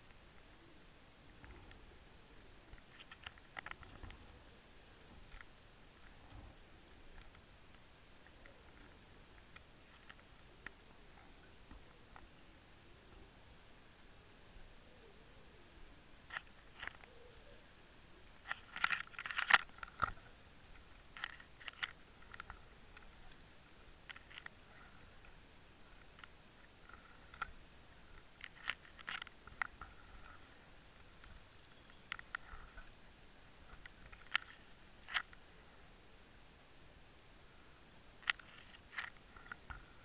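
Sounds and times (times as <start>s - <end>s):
faint steady hiss: 0.0s - 40.0s
underwater clicks and crunches: 2.7s - 4.3s, 5.2s - 6.2s, 7.1s - 12.3s, 16.3s - 17.1s, 18.4s - 23.4s, 24.0s - 25.3s, 25.9s - 27.6s, 28.2s - 30.4s, 32.0s - 32.9s, 33.7s - 35.4s, 38.2s - 40.0s.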